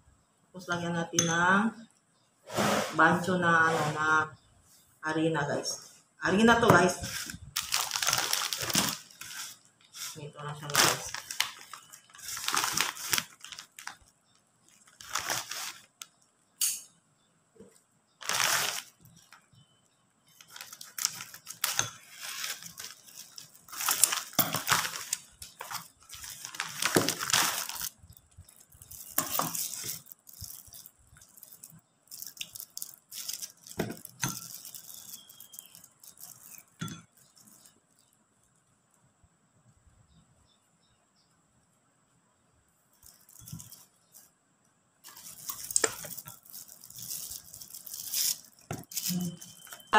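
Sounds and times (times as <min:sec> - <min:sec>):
thin wrappers rustling and crinkling: 0:06.8 - 0:16.3, 0:18.2 - 0:19.5, 0:20.3 - 0:38.6, 0:42.9 - 0:44.3, 0:45.0 - 0:49.9.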